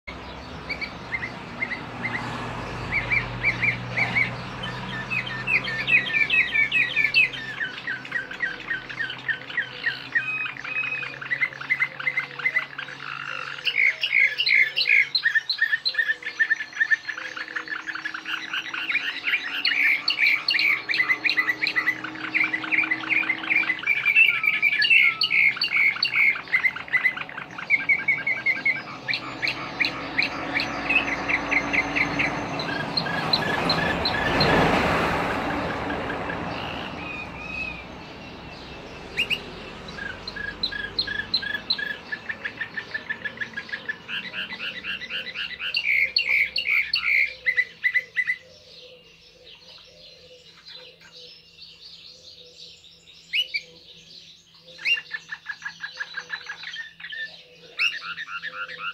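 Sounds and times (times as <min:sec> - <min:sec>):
canary singing trills: 0:00.0 - 0:58.9.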